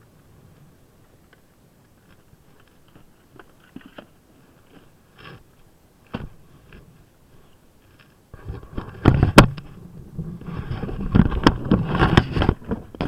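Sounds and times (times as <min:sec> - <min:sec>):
items rustling and clicking: 0:01.2 - 0:09.8.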